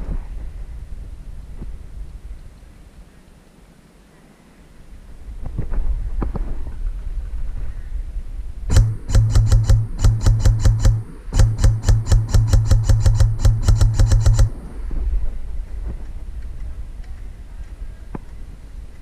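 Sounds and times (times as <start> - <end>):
low hum: 4.9 - 19.0
airsoft rifle rapid shots: 8.7 - 14.8.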